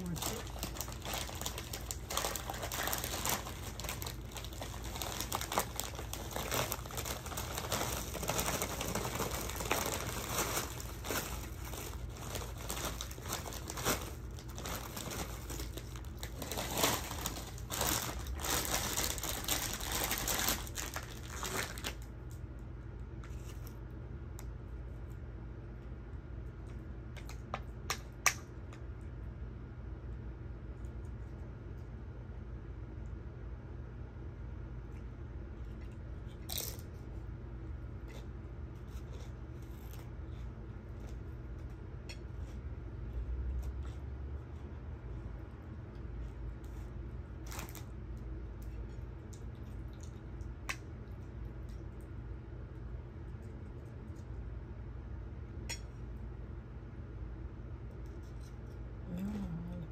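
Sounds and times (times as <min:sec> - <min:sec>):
chips being chewed: 0:00.0 - 0:22.1, 0:35.8 - 0:37.0.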